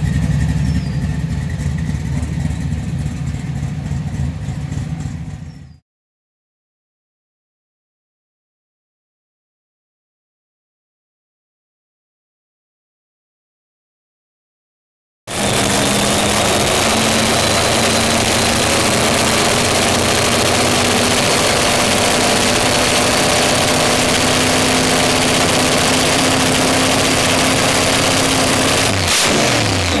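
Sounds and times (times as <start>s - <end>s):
car engine idling: 0.0s - 5.8s, 15.3s - 30.0s.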